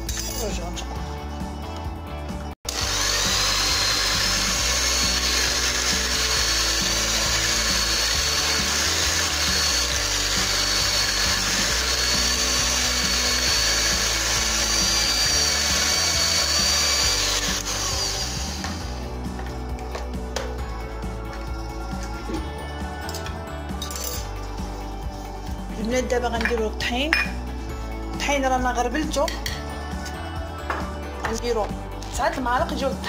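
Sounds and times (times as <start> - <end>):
background music: 0.0 - 33.0
electric hand mixer whining: 2.7 - 22.8.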